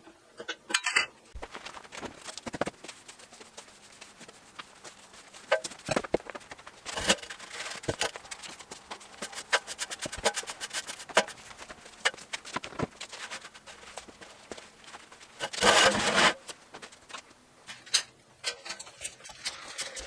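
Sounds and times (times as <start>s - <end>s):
broom sweeping concrete floor: 1.9s - 16.6s.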